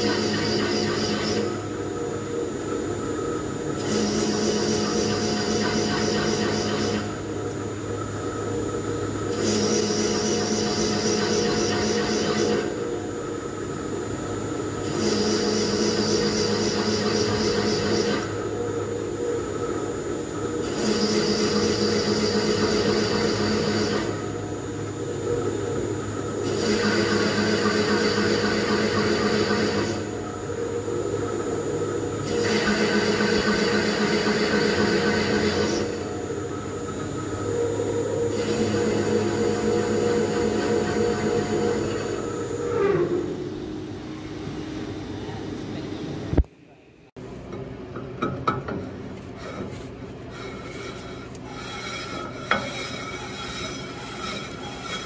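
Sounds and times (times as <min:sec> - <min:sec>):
machine hiss: 0:00.0 - 0:46.4
pipe threading machine hum: 0:00.0 - 0:46.5, 0:47.2 - 0:55.0
metal threads rasping: 0:49.3 - 0:55.0.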